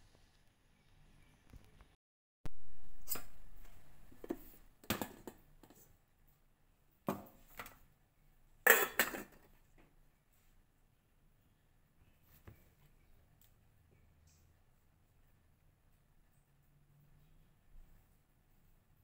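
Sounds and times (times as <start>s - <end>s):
metal plate and lid clinking: 8.7s - 9.4s.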